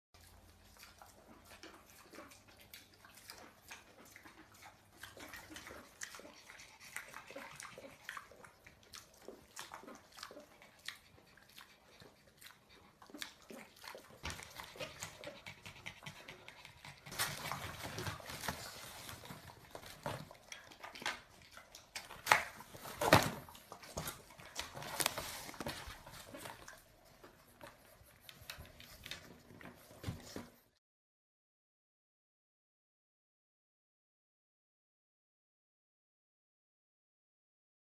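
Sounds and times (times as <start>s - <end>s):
small animal noises: 0.2s - 30.6s.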